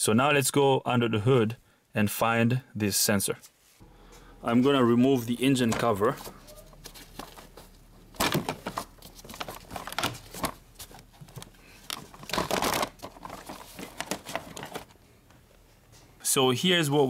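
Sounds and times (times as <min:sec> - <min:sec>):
rustling scrapes: 0:05.8 - 0:15.0.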